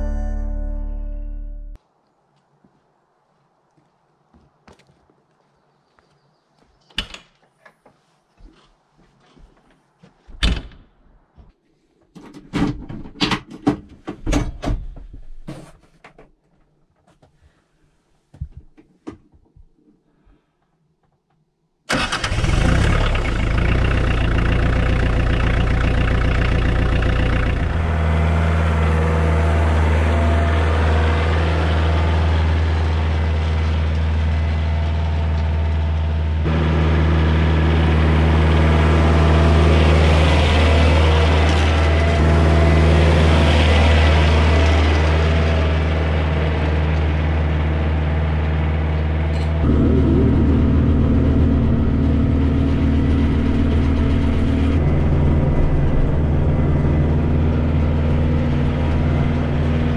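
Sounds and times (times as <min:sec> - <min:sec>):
diesel engine cranking: 0:21.9 - 0:59.9
tractor engine running: 0:21.9 - 0:59.9.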